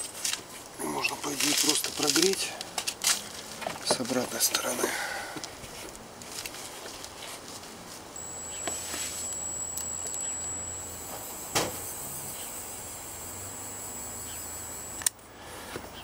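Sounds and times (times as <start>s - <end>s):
motor whining over low hum: 8.2s - 16.0s.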